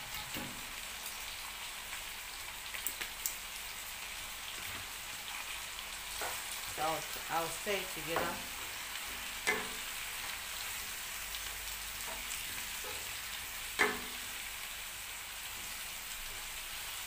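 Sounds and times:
vegetables sizzling in a pan: 0.0s - 17.0s
wooden spoon knocking on pan: 8.1s - 8.5s.

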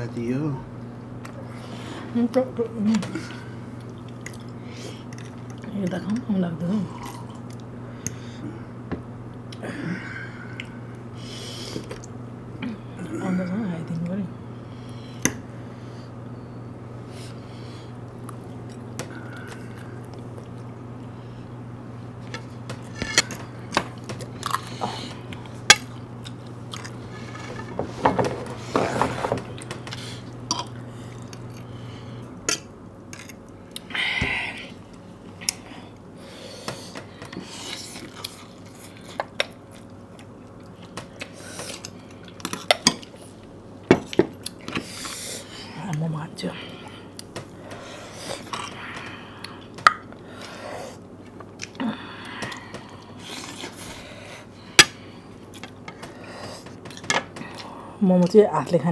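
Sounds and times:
low steady hum: 0.0s - 58.9s
person chewing: 3.4s - 5.6s, 18.0s - 21.1s, 22.2s - 27.4s, 29.5s - 34.0s, 37.3s - 45.4s, 46.8s - 54.0s.

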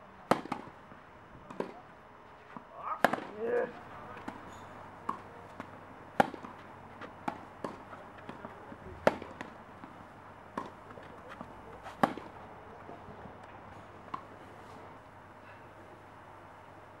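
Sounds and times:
tennis ball bouncing: 0.3s - 0.7s, 1.5s - 1.8s, 2.5s - 12.4s, 14.1s - 14.3s
tennis ball hitting racket: 0.3s - 0.7s, 1.5s - 1.8s, 2.5s - 12.4s.

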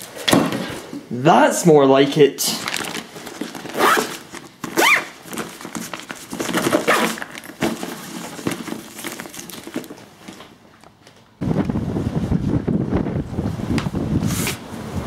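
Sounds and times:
fabric rustling and crinkling: 2.4s - 11.4s
zip pulled shut: 3.7s - 5.2s.

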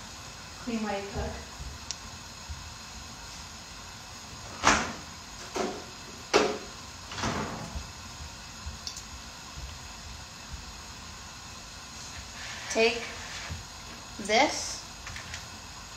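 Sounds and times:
cupboard doors opening and shutting: 4.4s - 7.8s.

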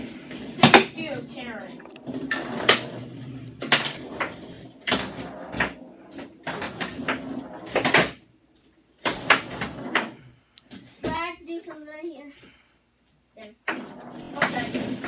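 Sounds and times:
foosball knocks and clacks: 0.0s - 11.2s, 13.6s - 15.0s
foosball rods banging: 0.0s - 11.4s, 13.5s - 15.0s.

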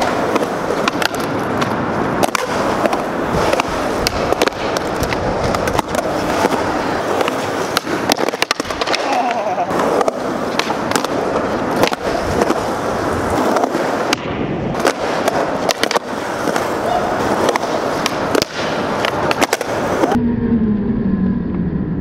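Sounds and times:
skateboard clacks: 0.0s - 20.2s
skateboard wheels rolling on concrete: 0.0s - 20.2s
low hum: 20.0s - 22.0s.

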